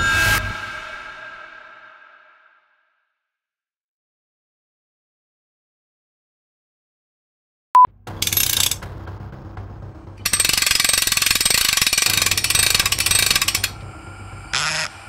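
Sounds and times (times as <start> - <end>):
handwheel gears clattering: 8.2 - 8.8, 10.3 - 13.8.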